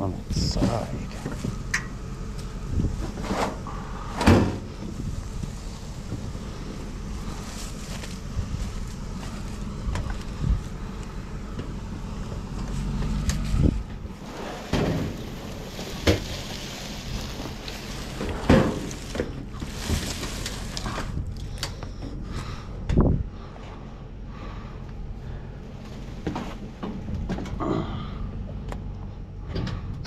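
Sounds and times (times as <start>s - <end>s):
low engine idle hum: 0.0s - 30.0s.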